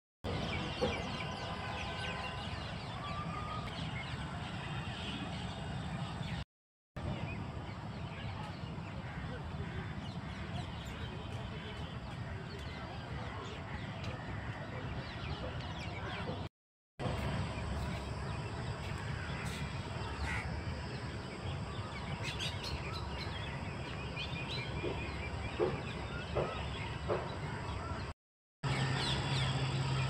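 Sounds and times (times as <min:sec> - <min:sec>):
birds chirping: 0:17.1 - 0:28.1.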